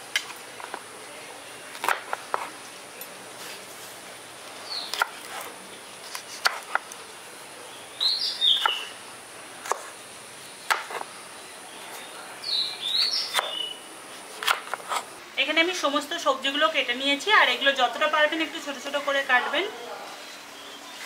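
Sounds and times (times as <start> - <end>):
bird chirping: 4.6 - 5.0, 7.7 - 9.0, 10.4 - 13.9.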